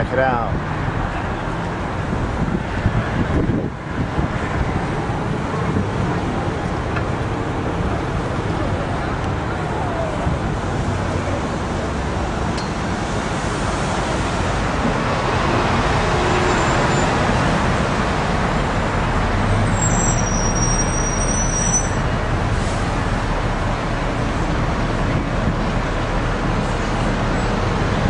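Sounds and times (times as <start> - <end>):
bus engine: 0.0 - 28.0
cars passing: 0.0 - 28.0
road traffic noise: 0.0 - 28.0
faint high squeal: 19.6 - 22.0.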